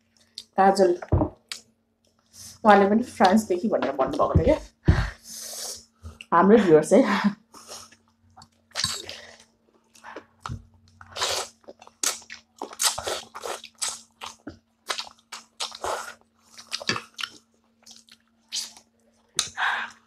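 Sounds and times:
faint steady hum: 0:00.0 - 0:20.0
crunching and wet chewing: 0:08.0 - 0:19.6.

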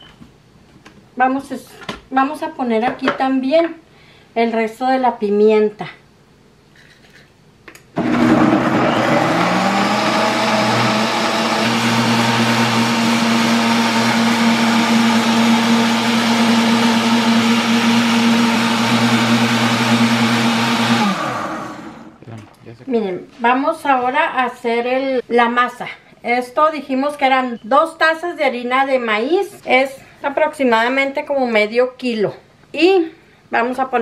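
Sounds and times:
blender motor whirring: 0:08.0 - 0:22.2.

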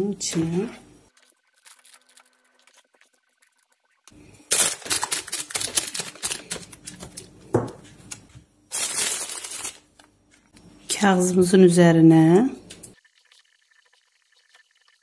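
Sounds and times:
plastic bag crinkling: 0:04.4 - 0:07.4, 0:08.1 - 0:10.1.

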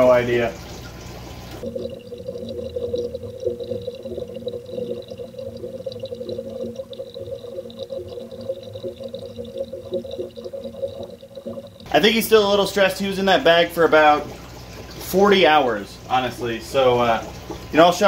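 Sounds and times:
underwater aquarium bubbling: 0:00.0 - 0:18.0.

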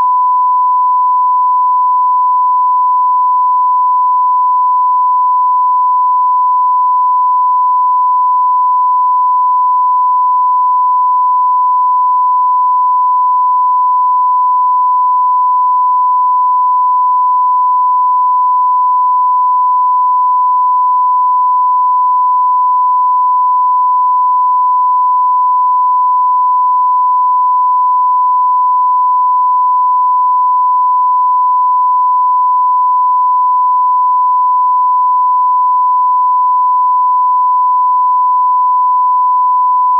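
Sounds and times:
sine-wave test tone: 0:00.0 - 0:39.9.

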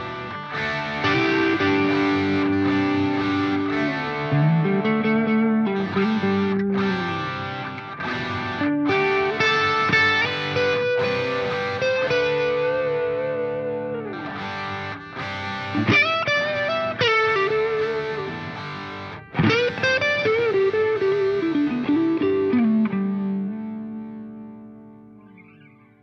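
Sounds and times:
distorted electric guitar lead: 0:00.0 - 0:26.0.

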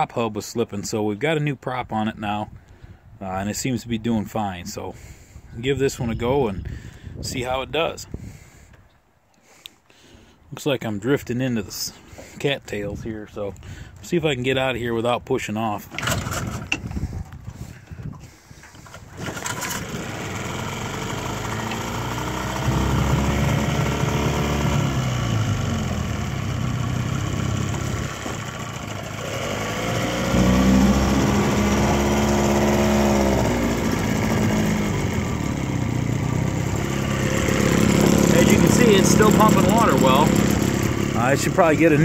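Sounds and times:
outboard motor running: 0:16.0 - 0:42.0.

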